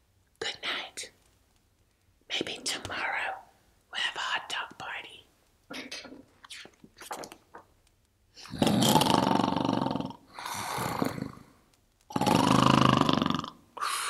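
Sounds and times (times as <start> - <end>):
woman imitating snoring: 8.4 - 11.5, 12.1 - 14.0.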